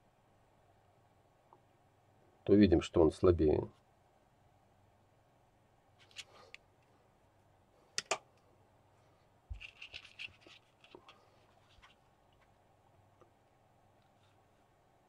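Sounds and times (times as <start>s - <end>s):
small parts clicking: 9.5s - 11.2s.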